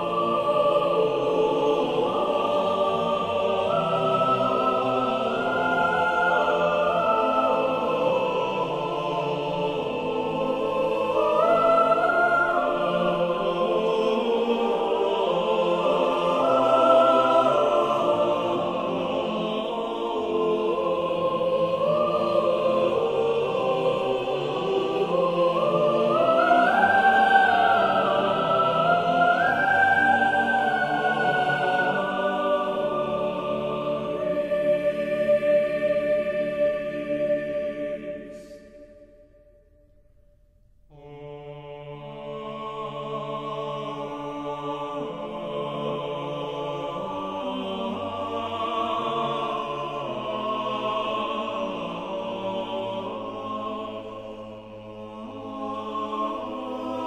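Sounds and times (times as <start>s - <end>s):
slow classical choral singing: 0.0s - 39.9s, 40.9s - 57.0s.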